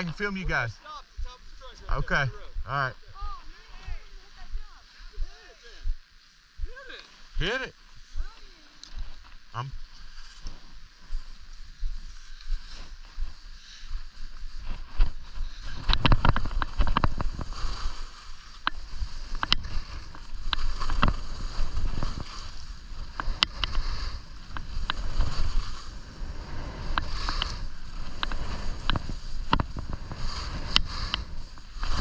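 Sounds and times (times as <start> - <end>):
skis scraping over snow: 9.8 - 32.0
wind on microphone: 10.5 - 32.0.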